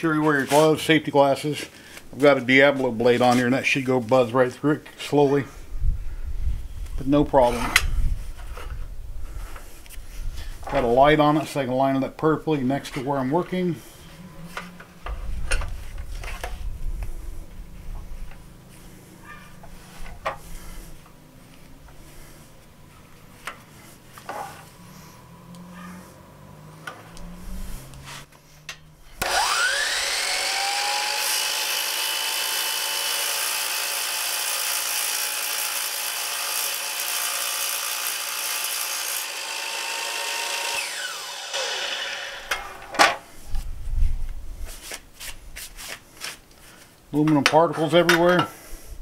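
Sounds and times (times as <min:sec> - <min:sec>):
miter saw cutting aluminum: 0:29.2 - 0:43.0.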